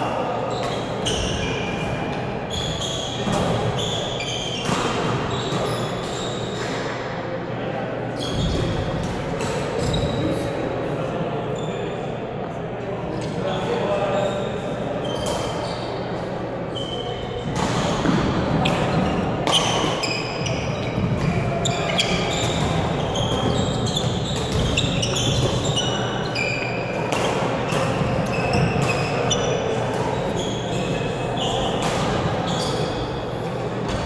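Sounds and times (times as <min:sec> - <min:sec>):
sneakers squeaking on wooden floor: 0:00.5 - 0:06.8, 0:08.2 - 0:09.0, 0:09.8 - 0:10.3, 0:16.7 - 0:34.0
racket hitting shuttlecock: 0:17.5 - 0:26.0, 0:26.9 - 0:29.3.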